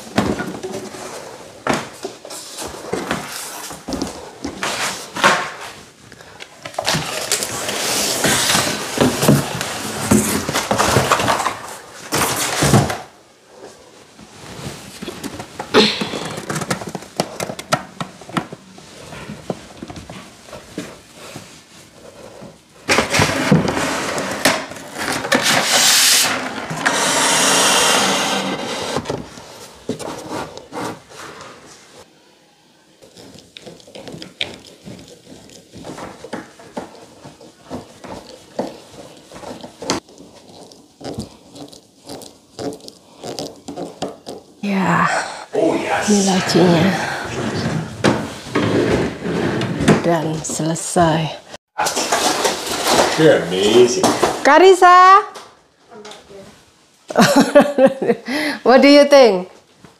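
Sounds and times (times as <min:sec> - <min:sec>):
wooden parts scraping: 0:51.8 - 0:54.4.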